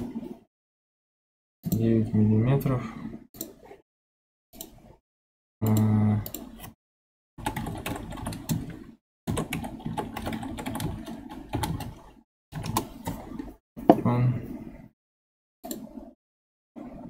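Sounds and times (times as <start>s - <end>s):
low voice hum: 5.6s - 6.4s, 14.0s - 14.7s.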